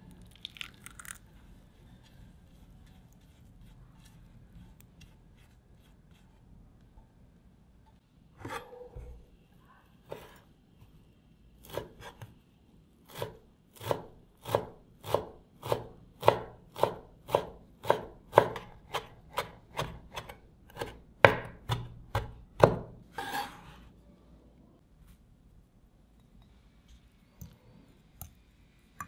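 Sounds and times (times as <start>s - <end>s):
knife chopping on wooden board: 13.1s - 23.6s
knife scraping board: 23.1s - 23.9s.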